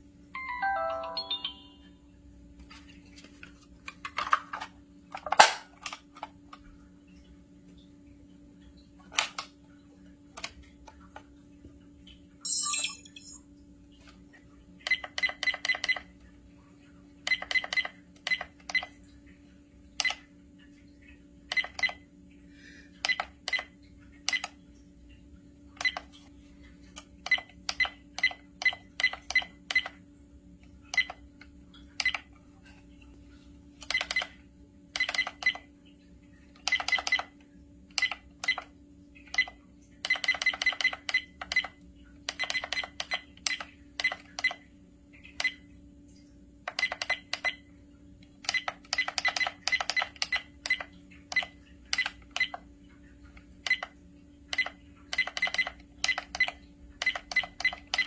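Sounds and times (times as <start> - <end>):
short high electronic beeps: 12.4 - 13.4.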